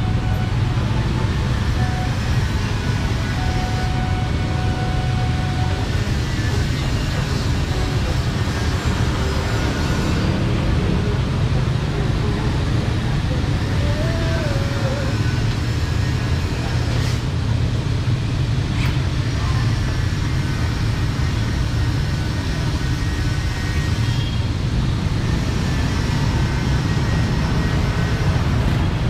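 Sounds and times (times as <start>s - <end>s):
traffic rumble: 0.0s - 29.0s.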